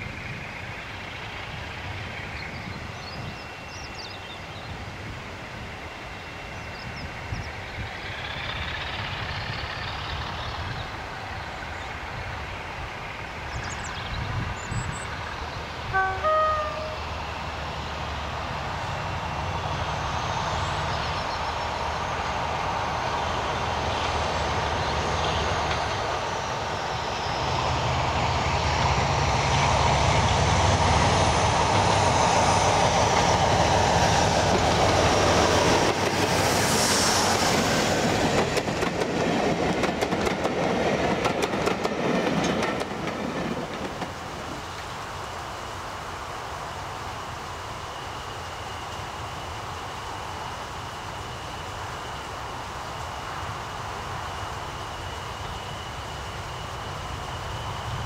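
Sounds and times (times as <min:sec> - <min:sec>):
diesel locomotive engine: 0:00.0 - 0:58.0
train horn blast: 0:15.9 - 0:17.3
train wheels clicking over rail joints: 0:22.6 - 0:27.0, 0:28.0 - 0:45.1.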